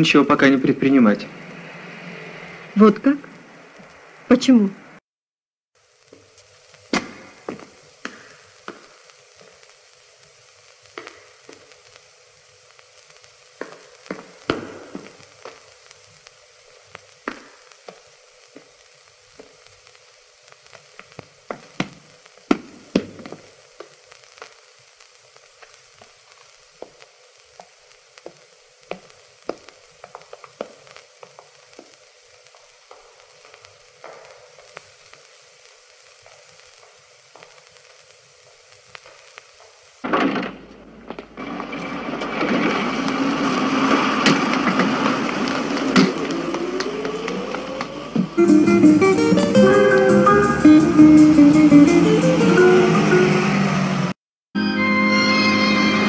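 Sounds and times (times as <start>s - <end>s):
film soundtrack hiss and crackles: 0.0s - 5.0s, 5.8s - 56.0s
music with guitar: 48.4s - 53.7s, 54.6s - 56.0s.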